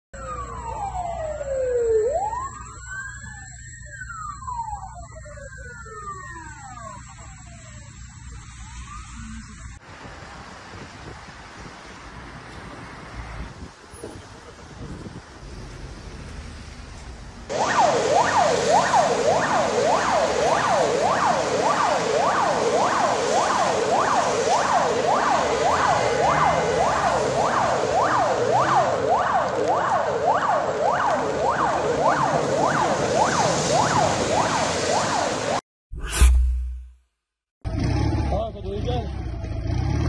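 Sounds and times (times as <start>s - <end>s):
siren yelping: 0.2s - 9.8s, 17.5s - 35.6s.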